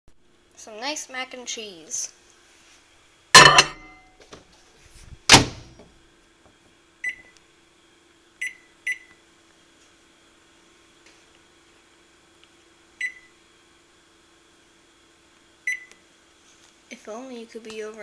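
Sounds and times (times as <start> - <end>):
faint steady hum: 0.2 - 4.3
microwave door clunks: 3.4 - 3.9, 5.3 - 5.8.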